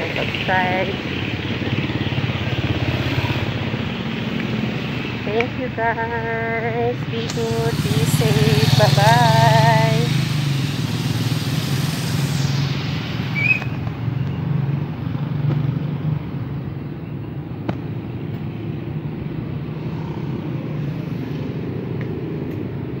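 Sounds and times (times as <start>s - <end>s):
traffic hum and road noise: 0.0s - 23.0s
short high chirp: 13.3s - 13.8s.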